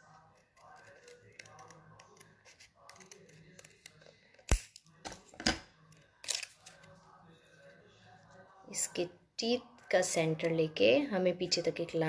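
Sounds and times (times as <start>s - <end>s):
scissors snipping paper: 0.0s - 4.8s
sharp snap: 4.5s - 4.8s.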